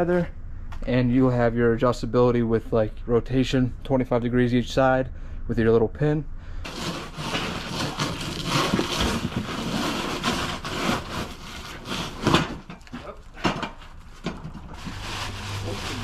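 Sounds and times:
packaging rustling: 0:06.7 - 0:16.0.

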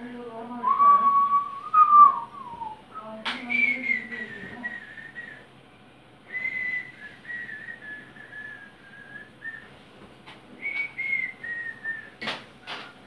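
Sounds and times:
person whistling a tune: 0:00.6 - 0:02.8, 0:03.5 - 0:05.4, 0:06.3 - 0:09.7, 0:10.6 - 0:12.2.

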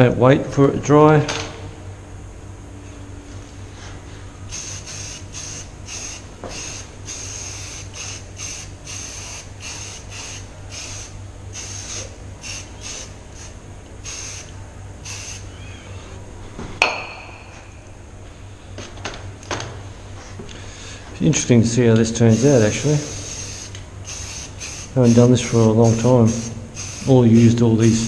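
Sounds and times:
spray paint can hissing: 0:04.5 - 0:15.4, 0:22.3 - 0:27.2.

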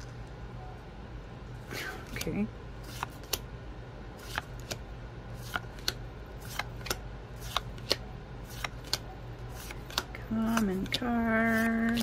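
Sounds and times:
cards flicked with crisp snaps: 0:02.1 - 0:03.5, 0:04.2 - 0:04.8, 0:05.4 - 0:09.0, 0:09.6 - 0:10.7.

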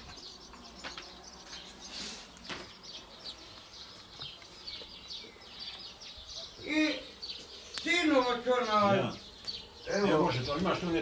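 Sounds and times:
songbirds chirping: 0:00.0 - 0:11.0.

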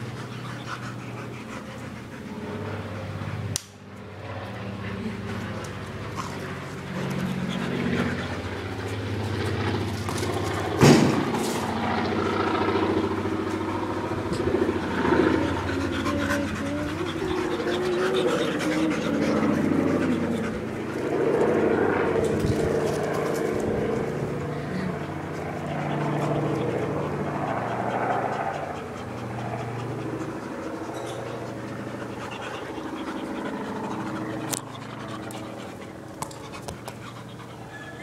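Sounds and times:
dogs panting: 0:00.0 - 0:38.0
low engine-like hum: 0:00.0 - 0:38.0
sharp thump: 0:10.8 - 0:11.4
wavering pitched sounds: 0:14.2 - 0:22.1.

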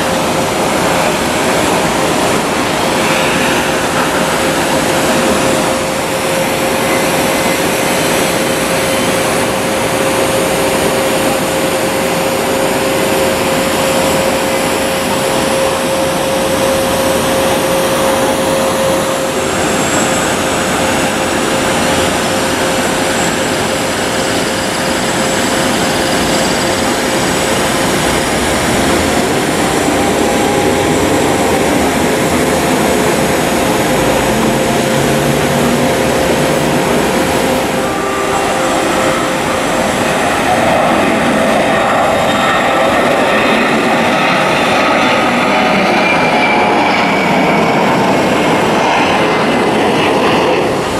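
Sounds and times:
jet airliner whine: 0:00.0 - 0:50.9.

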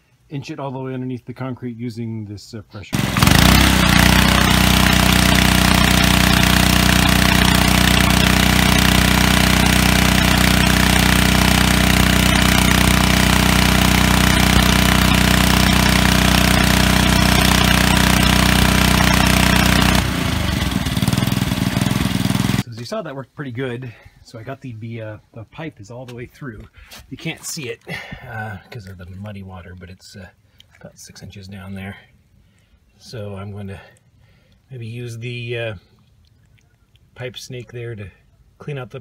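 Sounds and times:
pressure washer motor hum: 0:03.0 - 0:22.6.

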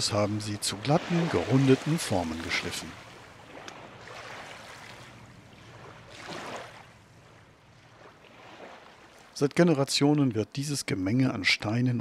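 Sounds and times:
small waves washing over pebbles: 0:00.7 - 0:09.4.

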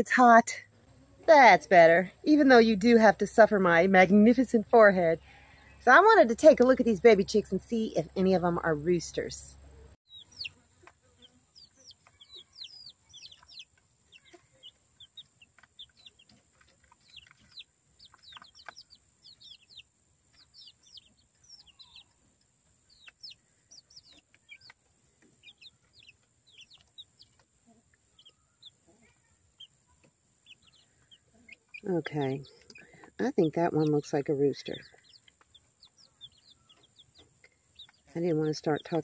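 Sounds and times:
chicks peeping: 0:09.0 - 0:39.0.

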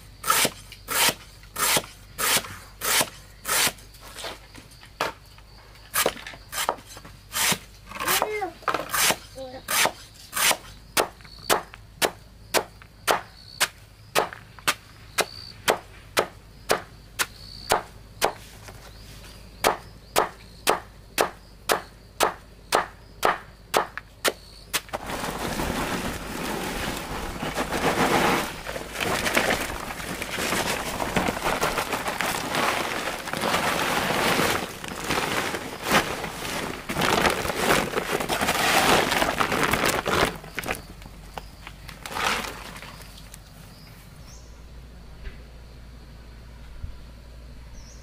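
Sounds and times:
dense crackling noise: 0:24.9 - 0:43.4.

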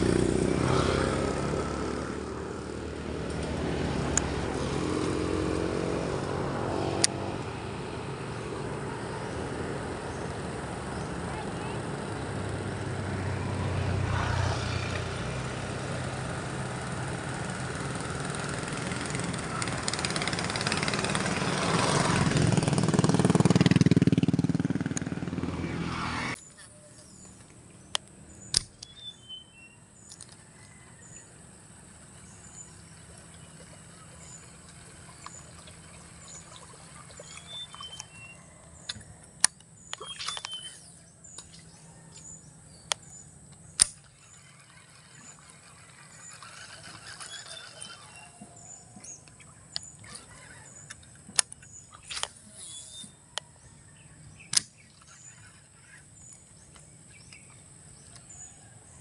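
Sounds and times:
fishing tackle clicks: 0:38.8 - 0:48.2
fishing tackle rustles: 0:43.6 - 0:49.4.

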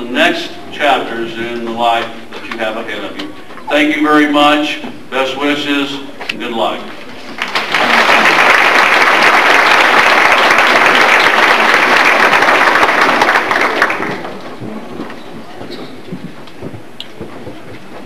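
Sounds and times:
audience applauding: 0:07.3 - 0:14.6.

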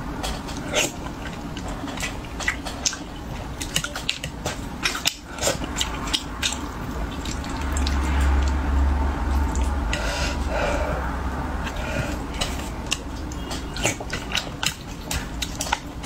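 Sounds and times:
wet squishy chewing: 0:00.2 - 0:10.8, 0:11.6 - 0:16.0
low rumble: 0:05.6 - 0:13.8.

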